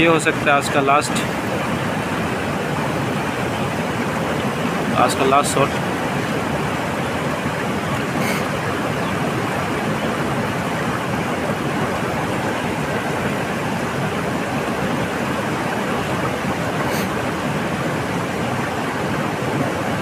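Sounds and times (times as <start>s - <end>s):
river rushing over rocks: 0.0s - 20.0s.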